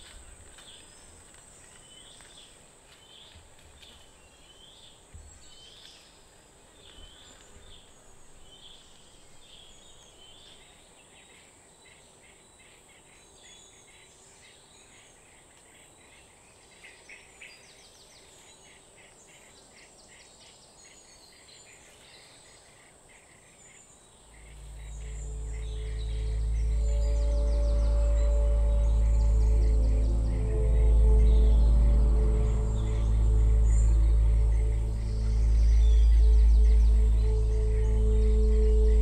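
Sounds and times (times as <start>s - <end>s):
high insect drone: 24.3s - 39.0s
low drone: 24.3s - 39.0s.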